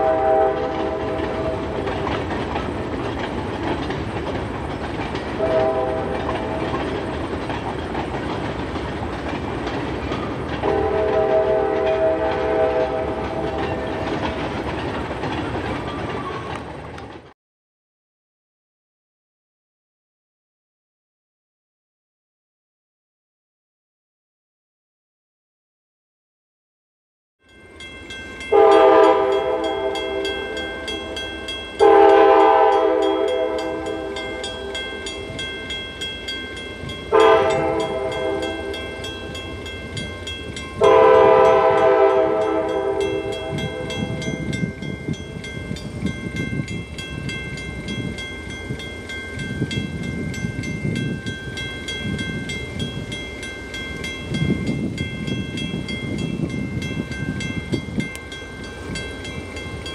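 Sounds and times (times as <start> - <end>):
locomotive horn blowing: 0.0 - 1.9, 5.4 - 6.8, 10.6 - 14.0, 28.5 - 31.2, 31.8 - 34.7, 37.1 - 38.8, 40.8 - 44.3
freight train rumbling past: 0.0 - 17.3, 27.5 - 59.9.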